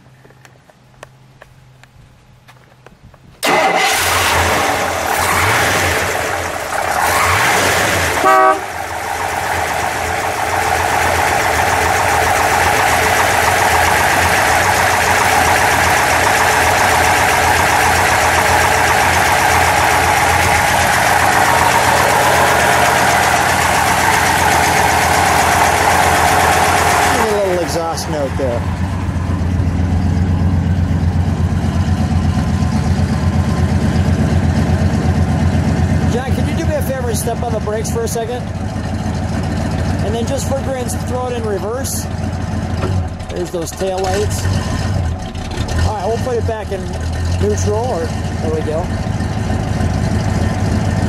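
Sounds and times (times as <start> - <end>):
car engine starting and idling: 3.4 - 51.0
car horn blast: 8.2 - 8.8.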